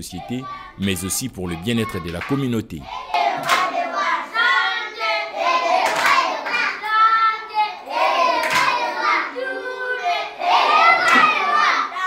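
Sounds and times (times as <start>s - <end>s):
children singing: 0.0s - 12.0s
hand claps: 3.4s - 3.8s, 5.8s - 6.6s, 8.4s - 8.8s, 11.0s - 11.4s.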